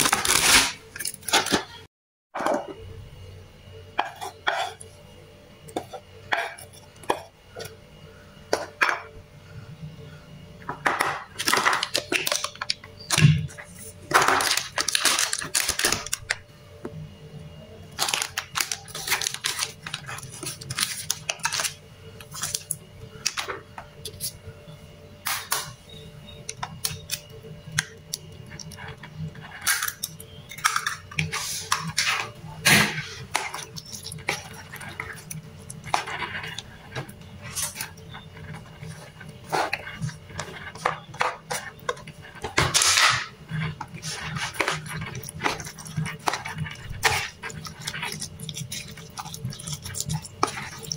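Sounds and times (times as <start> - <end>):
knife scraping cutting board: 4.0 - 4.9, 31.2 - 50.9
metal spoon scraping plastic bowl: 26.5 - 50.9.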